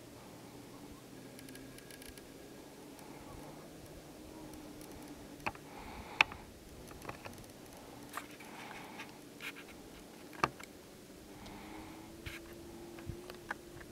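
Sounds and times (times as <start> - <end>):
faint outdoor background: 0.0 - 13.9
sharp clicks: 1.4 - 2.3
soft scratchy rustling: 6.6 - 10.7, 11.3 - 13.9.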